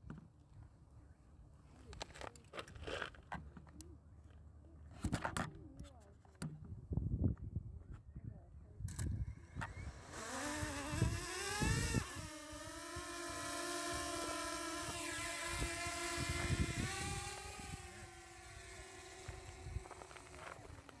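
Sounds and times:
drone propellers whining: 9.4 - 21.0.

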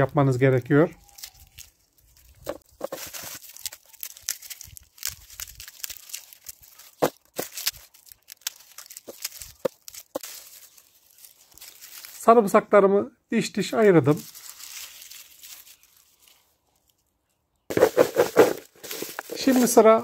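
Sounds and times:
papery garlic skins crackling: 0.0 - 12.6, 13.6 - 20.0
garlic cloves snapping: 3.0 - 10.6.

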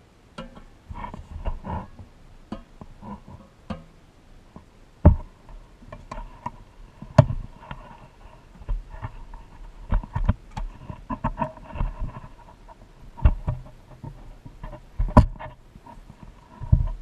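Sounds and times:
small metallic clicks and taps: 0.3 - 0.7, 2.5 - 3.9.

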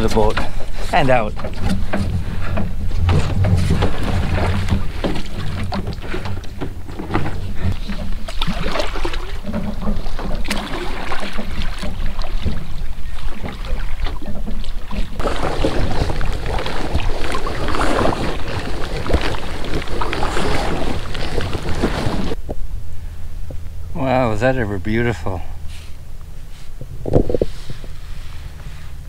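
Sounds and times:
water dripping and lapping: 0.0 - 22.4
paddle splashing in water: 1.4 - 22.4
wind rumble on microphone: 11.2 - 29.0.

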